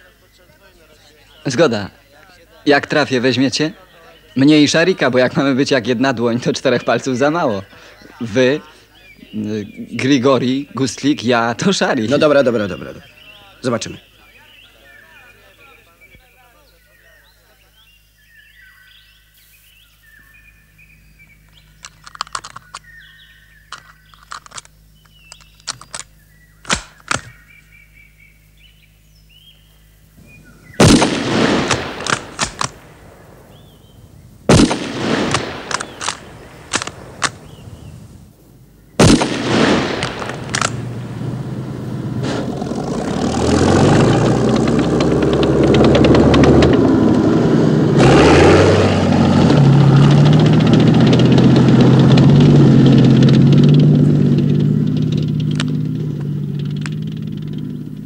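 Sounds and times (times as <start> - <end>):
birds chirping: 0.0 - 58.0
sharp clicks: 21.4 - 23.0, 23.7 - 27.4, 30.8 - 32.9, 34.5 - 37.5, 39.0 - 41.1, 43.2 - 47.3, 50.0 - 58.0
rifle shots with echo: 26.7 - 27.4, 30.8 - 33.9, 34.5 - 37.6, 39.0 - 42.5
tank diesel engine and tracks: 30.8 - 33.8, 34.5 - 37.8, 39.0 - 58.0.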